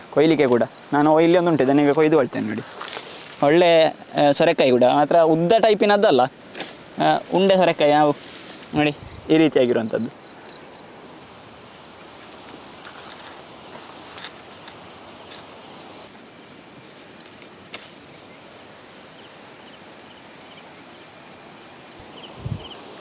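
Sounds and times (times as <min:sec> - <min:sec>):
crickets chirping: 0:00.0 - 0:23.0
knife snapping through stalk: 0:06.5 - 0:06.8, 0:17.2 - 0:18.0.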